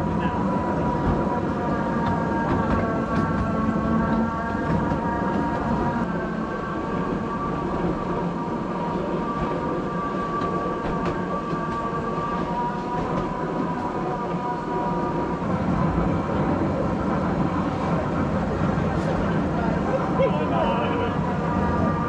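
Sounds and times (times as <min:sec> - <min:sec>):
miniature train whine: 0:00.0 - 0:22.0
wheels rumbling on rails: 0:00.0 - 0:22.0.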